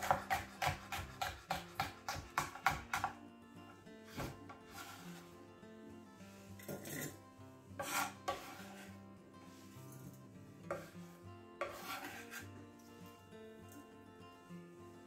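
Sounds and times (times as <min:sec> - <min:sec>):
knife scraping on chopping board: 0:00.0 - 0:03.0, 0:04.1 - 0:05.2, 0:06.6 - 0:07.2, 0:07.8 - 0:09.0, 0:10.7 - 0:12.5
soft background music: 0:00.0 - 0:15.0.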